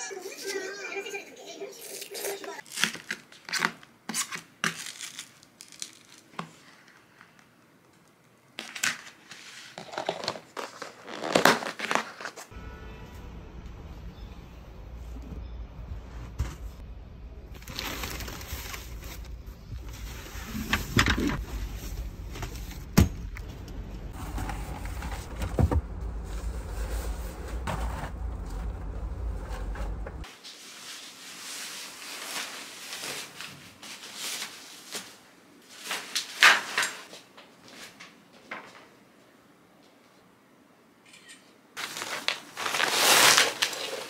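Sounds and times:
bags and bedding rustling: 29.6s - 37.1s.

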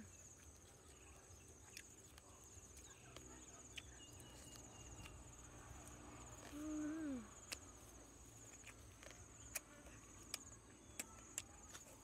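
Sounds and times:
person humming while eating: 6.5s - 7.5s.

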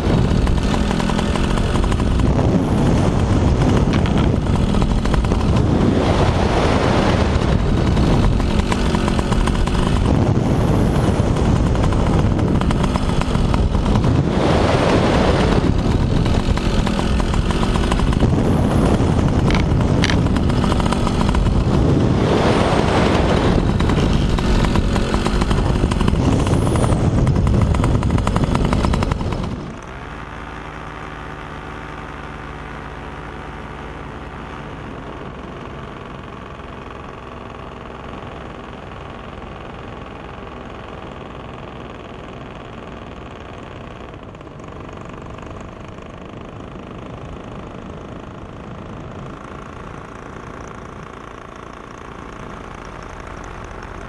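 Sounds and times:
rushing wind noise: 0.0s - 30.0s
paramotor engine drone: 0.0s - 54.0s.

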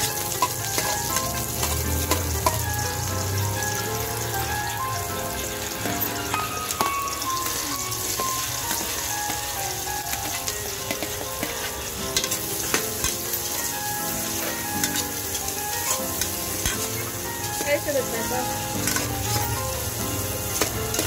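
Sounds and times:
vegetables sizzling in hot oil: 0.0s - 21.0s
metal spoon scraping and knocking pot: 18.8s - 19.5s.

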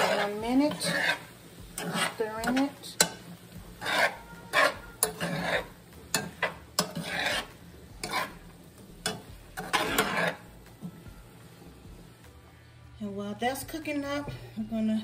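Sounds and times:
utensil scraping through food: 0.0s - 2.7s, 3.8s - 10.5s
utensil clicking on pan: 0.0s - 8.4s, 9.0s - 10.4s
food sizzling in a skillet: 0.0s - 12.3s.

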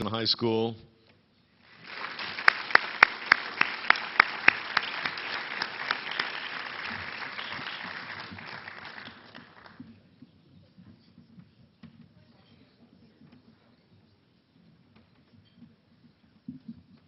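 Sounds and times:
audience applauding: 1.6s - 9.8s
hands clapping close to microphone: 1.7s - 9.8s.

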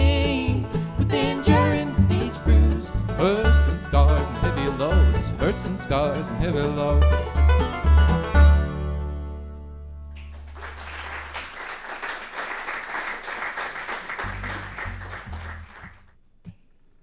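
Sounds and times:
low plucked notes: 0.0s - 10.3s, 14.2s - 16.6s
audience applauding: 10.2s - 16.1s
acoustic band low note: 14.1s - 16.6s.

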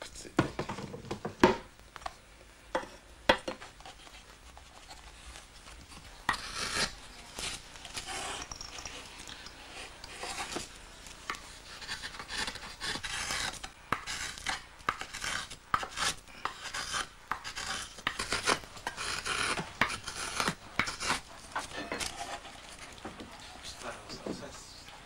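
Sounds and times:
blade scraping and rasping: 3.8s - 23.0s.

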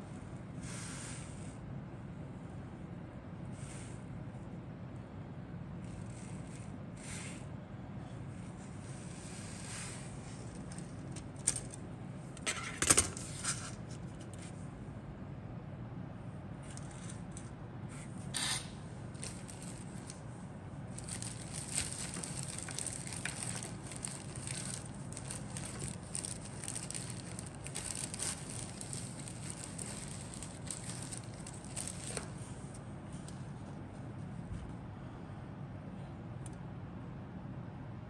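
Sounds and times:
steady low hum: 0.0s - 38.0s
plastic crackling and clicking: 21.0s - 32.4s.

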